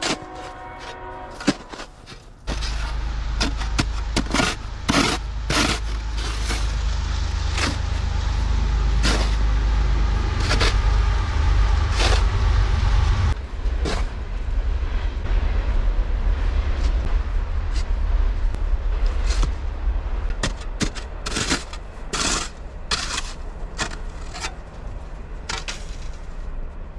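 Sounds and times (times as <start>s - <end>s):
snow shovel scraping: 0.0s - 11.0s, 11.6s - 12.5s, 20.4s - 26.3s
loud low rumble: 0.0s - 26.9s.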